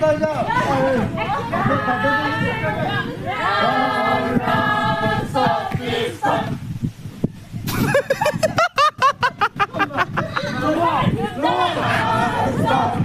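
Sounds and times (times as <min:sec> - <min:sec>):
young voices singing in unison: 0:01.0 - 0:06.9, 0:11.1 - 0:13.0.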